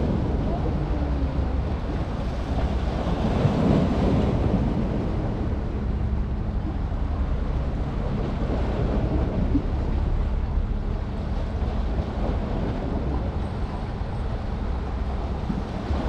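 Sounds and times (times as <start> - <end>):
open water washing: 0.0 - 16.0
wind rumbling on microphone: 0.0 - 16.0.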